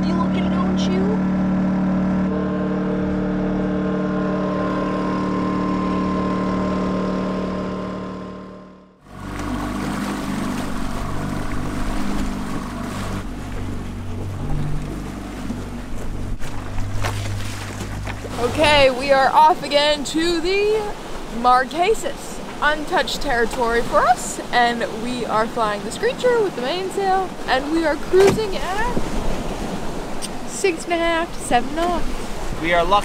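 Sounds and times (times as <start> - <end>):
hum of held tones: 0.0 - 17.0
water splashing along boat hull: 0.0 - 33.0
wind gusting on microphone: 26.2 - 33.0.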